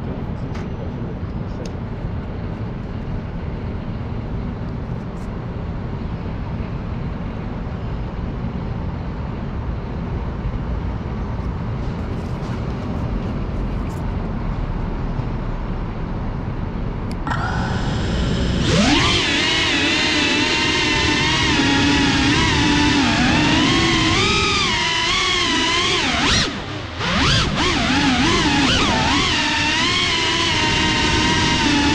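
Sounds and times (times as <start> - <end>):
city traffic rumble: 0.0 - 31.9
drone motors whining: 17.1 - 31.9.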